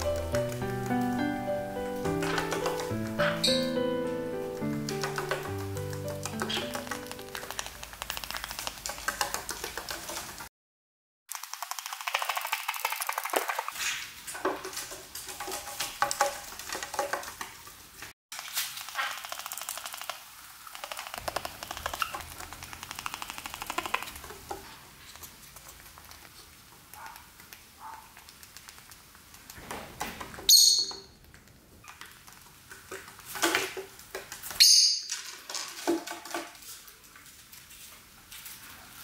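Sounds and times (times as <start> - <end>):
lovebird rattling chatter: 2.0 - 3.9, 4.7 - 10.2, 18.8 - 24.4
bird high-pitched chirps: 3.2 - 3.8, 30.5 - 31.1, 34.6 - 35.1.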